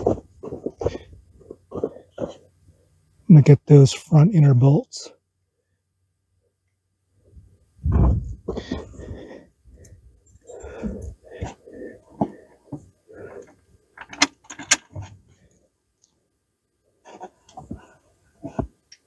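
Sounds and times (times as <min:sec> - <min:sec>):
rustling and handling noises: 0:00.0 - 0:03.0, 0:17.0 - 0:19.0.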